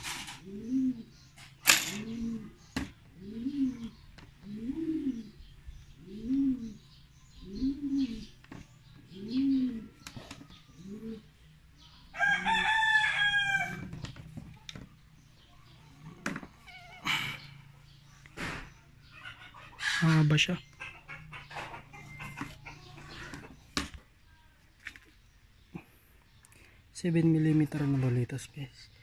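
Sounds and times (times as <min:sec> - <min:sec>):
birds cooing: 0:00.0 - 0:24.2
rooster crowing: 0:12.1 - 0:13.9.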